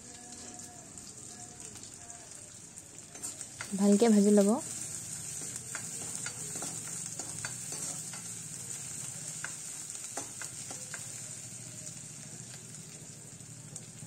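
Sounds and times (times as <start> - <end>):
onions sizzling in hot oil: 0.0 - 14.0
metal spatula scraping pan: 4.7 - 8.4.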